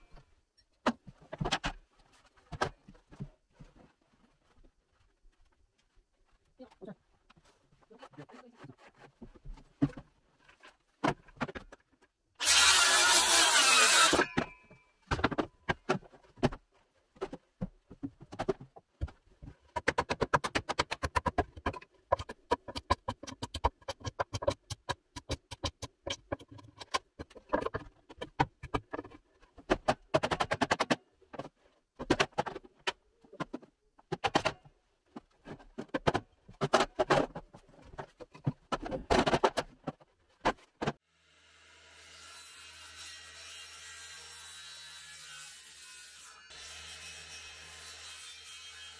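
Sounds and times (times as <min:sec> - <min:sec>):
circular saw cutting wood: 0:12.4 - 0:14.4, 0:41.1 - 0:48.9.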